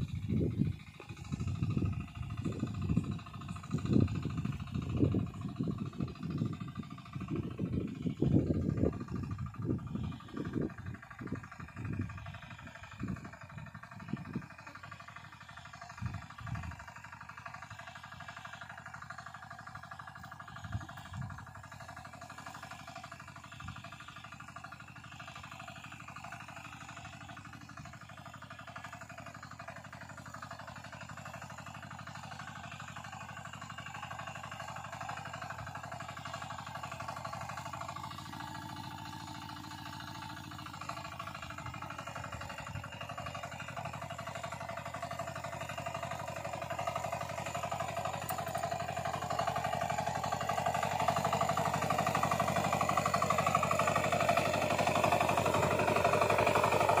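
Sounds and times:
power weeder engine running: 0.0 - 57.0
tines working soil: 31.0 - 57.0.

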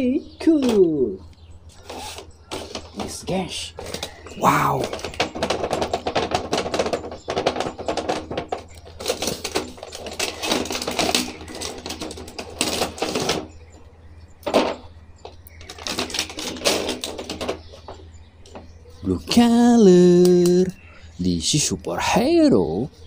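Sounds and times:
cardboard and plastic crinkling: 1.8 - 13.7, 14.5 - 18.7.

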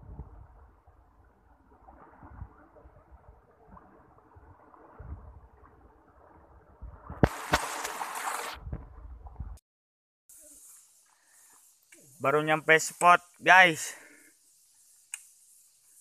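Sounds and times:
wind on microphone: 0.0 - 1.1, 1.9 - 7.4, 8.5 - 9.6
river water rushing and splashing: 7.2 - 8.6.

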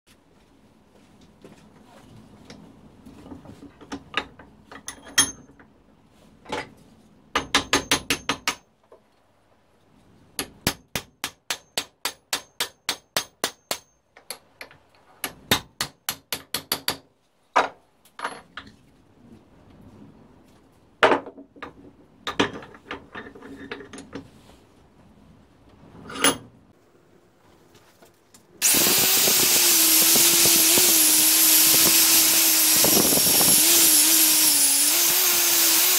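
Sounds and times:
angle grinder wire brushing: 28.6 - 35.9.

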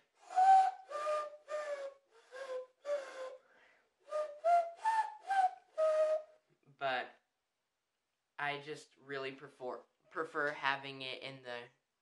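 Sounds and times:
inward tooth whistle: 0.2 - 6.4.

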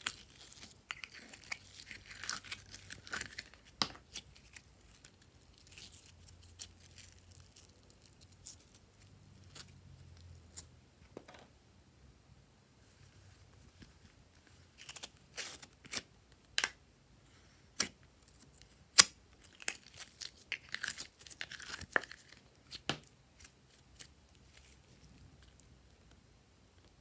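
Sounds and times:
sticky slime crackling and tearing: 0.0 - 10.7, 17.8 - 25.6.

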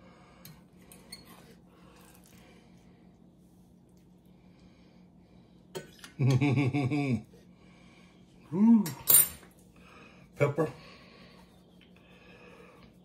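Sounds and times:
man humming: 8.5 - 8.9.

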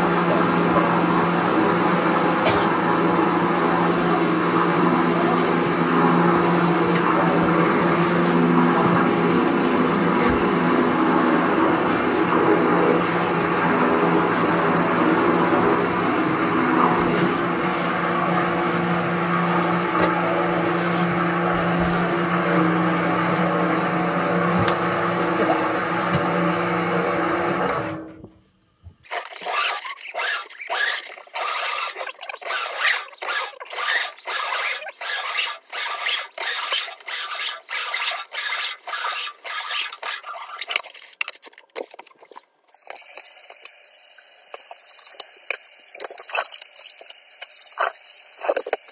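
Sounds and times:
pressure washer humming: 0.0 - 28.2
rough scraping strokes: 29.1 - 41.2.

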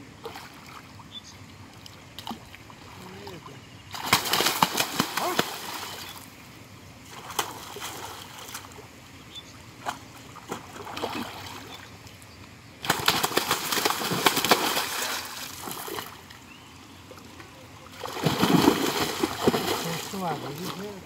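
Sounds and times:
fish splashing in water: 1.8 - 6.3, 7.1 - 8.9, 12.8 - 16.4, 17.2 - 21.0.

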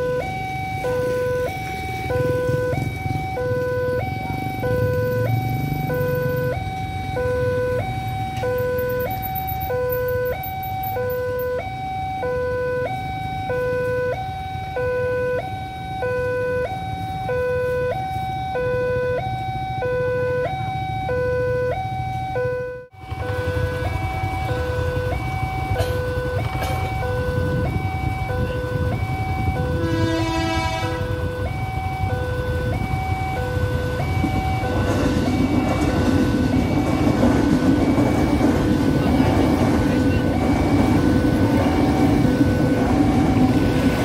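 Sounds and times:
two-tone level crossing alarm: 0.0 - 44.0
motorcycle engines idling: 23.0 - 43.8.

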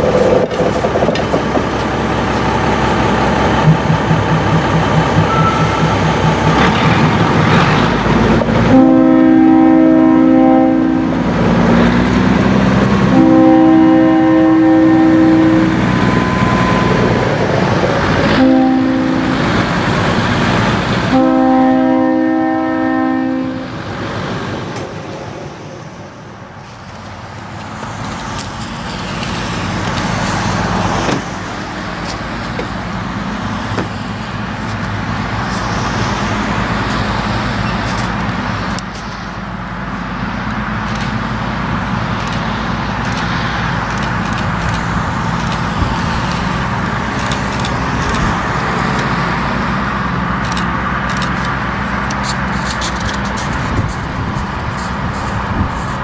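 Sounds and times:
diesel locomotive engine running: 0.0 - 56.0
locomotive horn: 5.1 - 7.0, 8.5 - 11.4, 12.8 - 17.2, 18.1 - 19.7, 21.0 - 23.8.

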